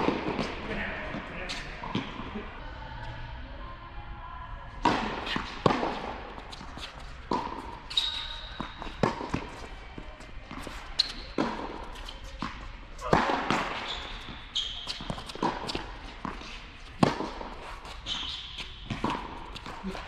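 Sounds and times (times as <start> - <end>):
racket hitting tennis ball: 0.0 - 0.7, 4.8 - 9.8, 10.5 - 20.0
ball bouncing on hard court: 4.8 - 9.7, 10.5 - 16.4, 17.0 - 17.5, 18.1 - 20.0
shoe squeaks on court: 6.5 - 9.2, 10.6 - 12.3, 13.6 - 15.8, 17.9 - 19.2.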